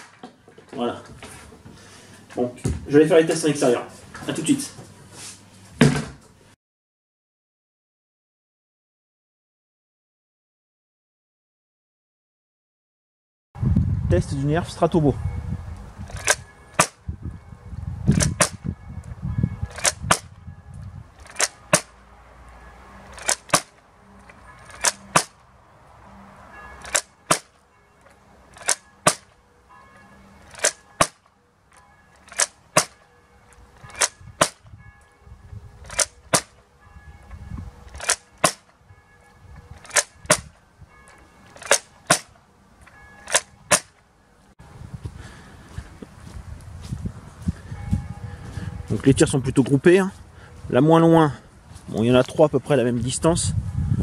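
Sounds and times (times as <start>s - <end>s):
toy bow plastic clicks: 16.1s - 16.4s, 21.2s - 21.8s, 23.1s - 23.6s, 35.8s - 36.5s, 39.8s - 40.4s, 41.6s - 42.3s.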